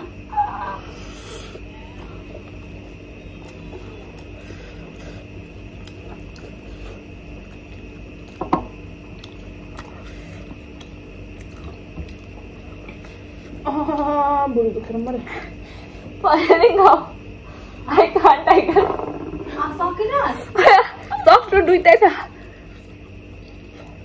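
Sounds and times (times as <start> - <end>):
steady hum: 0.0 - 24.0
chewing and wet mouth sounds: 1.6 - 13.6, 22.3 - 24.0.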